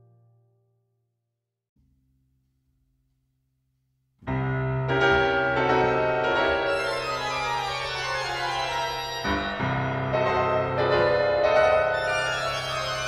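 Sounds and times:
solo piano chords: 0:04.3 - 0:13.0.

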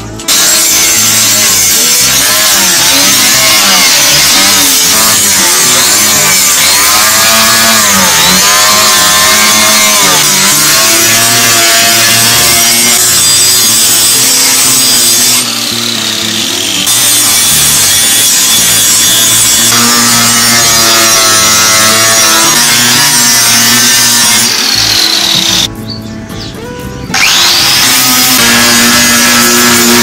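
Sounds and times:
angle grinder grinding steel: 0:00.0 - 0:25.7, 0:27.1 - 0:30.0.

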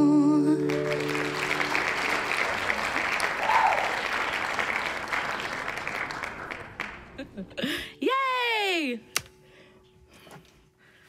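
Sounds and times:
audience clapping: 0:00.6 - 0:07.5.

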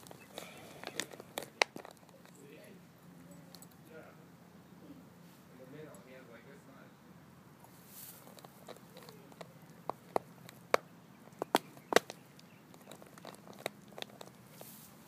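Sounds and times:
dog chewing plastic bottle: 0:00.0 - 0:02.3, 0:08.2 - 0:10.8, 0:11.4 - 0:14.7.

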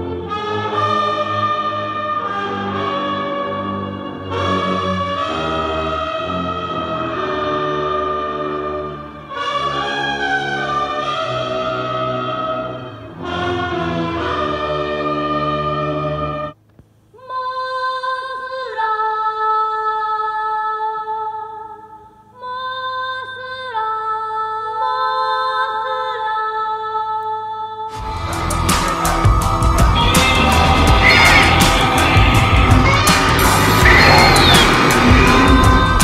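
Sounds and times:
long held sung notes: 0:27.9 - 0:36.0
harsh noisy passage with clicks: 0:30.2 - 0:36.0.

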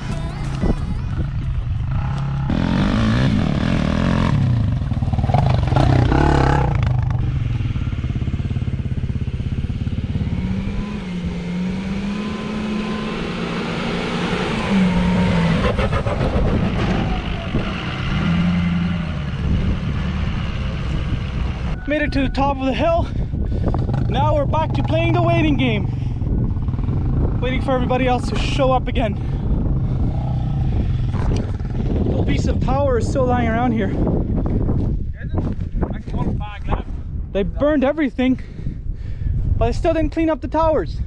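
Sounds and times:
truck engine labouring uphill: 0:00.0 - 0:32.2.

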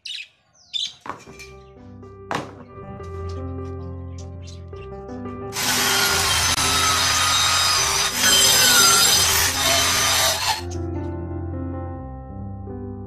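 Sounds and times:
power tool cutting rubber: 0:05.6 - 0:10.7.

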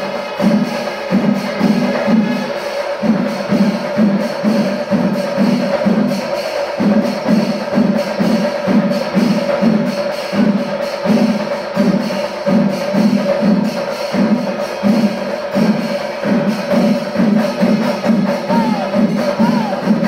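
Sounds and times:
cymbals: 0:00.0 - 0:20.0
massed drums beating: 0:00.0 - 0:20.0
held high note: 0:18.3 - 0:20.0.

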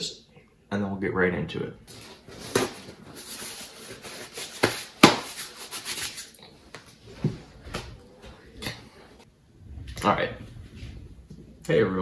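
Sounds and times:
paper rustling: 0:01.9 - 0:07.0.

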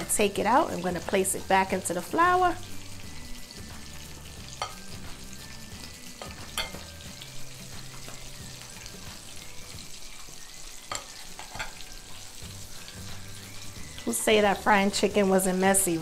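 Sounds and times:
chicken sizzling in hot oil: 0:00.0 - 0:16.0
metal tongs clicking on bowl: 0:06.2 - 0:06.8.

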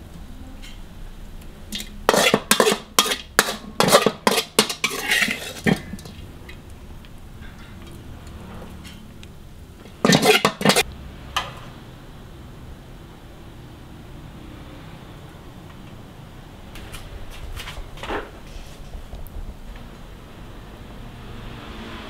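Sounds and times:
metal spatula scraping a wok: 0:01.8 - 0:06.6, 0:09.9 - 0:10.9.

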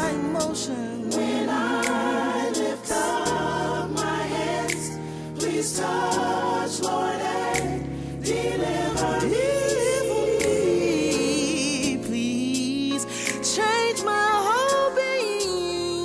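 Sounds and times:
choir singing: 0:00.0 - 0:12.2
keyboards and bass: 0:00.0 - 0:14.9.

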